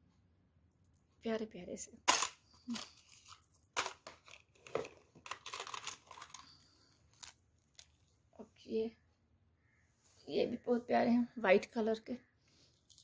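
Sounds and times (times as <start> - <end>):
rustling of cardboard cards: 2.7 - 8.0.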